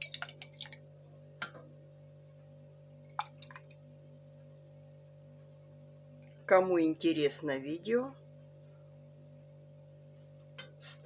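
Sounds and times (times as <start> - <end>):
ladle scooping and stirring: 0.0 - 0.8
faint steady hum: 0.0 - 11.0.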